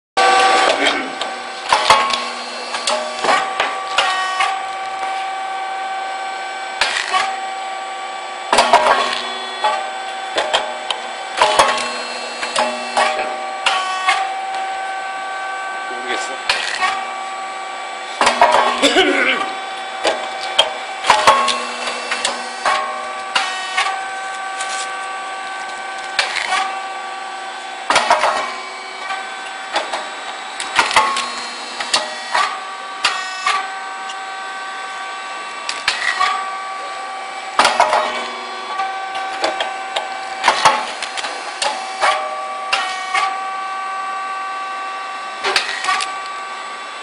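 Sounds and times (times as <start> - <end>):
steady machine whine: 0.2 - 47.0
machine pops and clacks: 1.7 - 4.6, 11.4 - 14.3, 20.1 - 23.9, 30.6 - 33.6, 37.6 - 38.3, 39.2 - 43.3.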